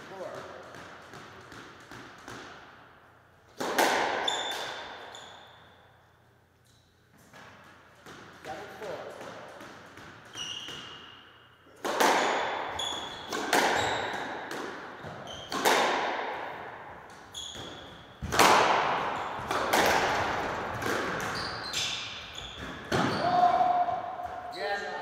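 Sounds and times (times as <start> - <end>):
squash ball smacks echoing: 0.0 - 2.9, 3.5 - 5.0, 7.3 - 11.0, 11.7 - 24.5
shoes squeaking on wooden floor: 12.7 - 14.2, 17.2 - 18.3, 21.2 - 23.5.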